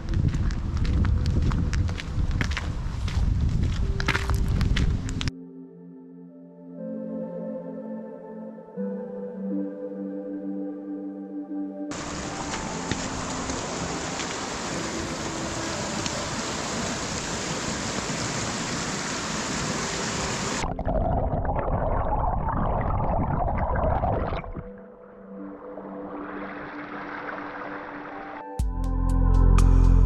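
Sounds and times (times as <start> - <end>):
mountain stream rushing: 11.9 - 20.7, 25.8 - 28.4.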